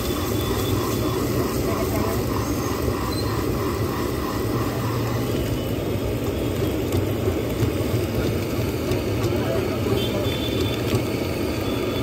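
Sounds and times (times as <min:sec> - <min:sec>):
egg frying in pan: 0:00.0 - 0:09.4
gas burner rushing: 0:00.0 - 0:12.0.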